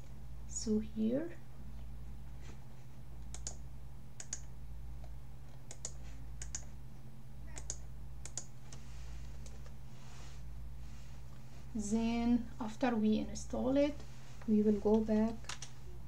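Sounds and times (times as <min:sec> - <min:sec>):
steady low hum: 0:00.0 - 0:16.0
computer mouse and keyboard clicks: 0:03.2 - 0:03.6, 0:04.2 - 0:06.7, 0:07.6 - 0:09.8, 0:14.9 - 0:15.8.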